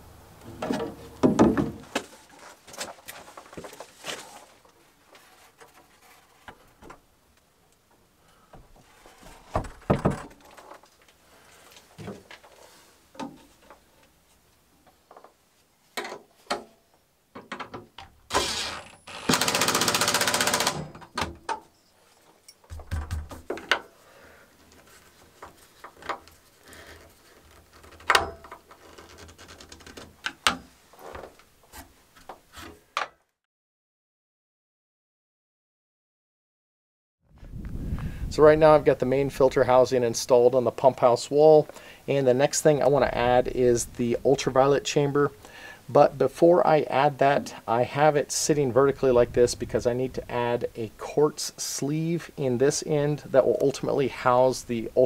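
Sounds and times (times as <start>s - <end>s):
knocks and clunks of handling: 0.4s - 7.0s, 7.9s - 14.1s, 14.8s - 18.2s, 20.6s - 24.0s, 24.6s - 33.2s
cordless drill driving screw: 18.3s - 20.8s.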